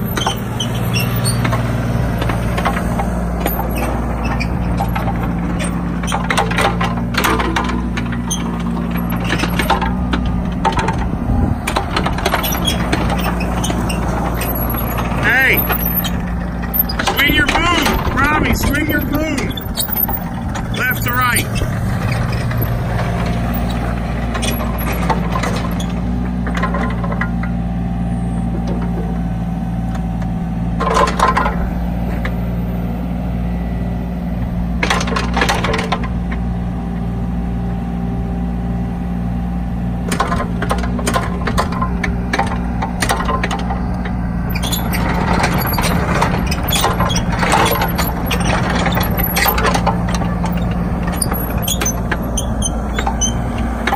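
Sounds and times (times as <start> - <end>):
metallic clanking and rattling: 0.0 - 27.6, 40.0 - 53.9
excavator diesel engine running: 0.0 - 53.9.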